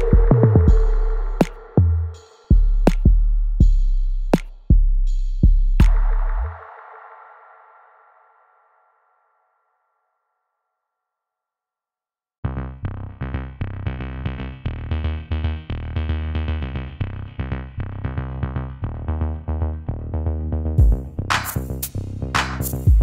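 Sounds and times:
pulsing synthesizer pattern: 0.0 - 3.0
sharp bright percussion hits: 0.0 - 3.2
drum-machine beat: 0.0 - 6.5, 20.8 - 23.0.

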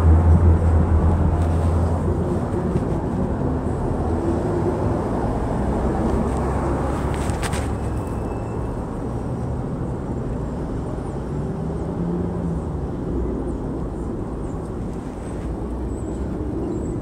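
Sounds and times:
steady low rumble: 0.0 - 7.2.

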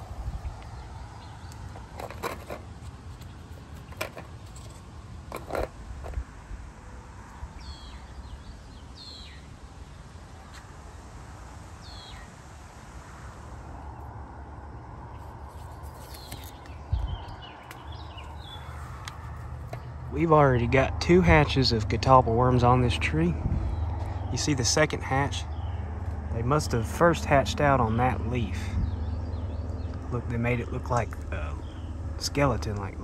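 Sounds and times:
bird chirping: 7.5 - 9.5, 11.8 - 12.3, 15.1 - 20.0, 26.8 - 33.0
leaves rustling: 15.2 - 20.0
leaves snapping and crackling: 15.7 - 16.8.

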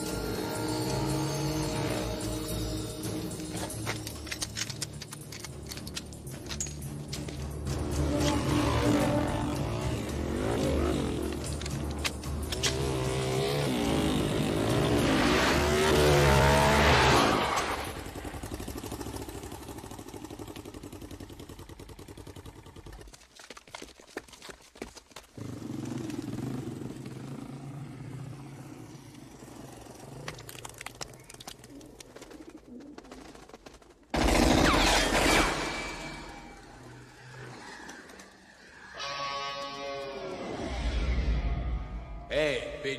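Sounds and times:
motorcycle engines revving: 7.2 - 23.0, 25.4 - 30.3.

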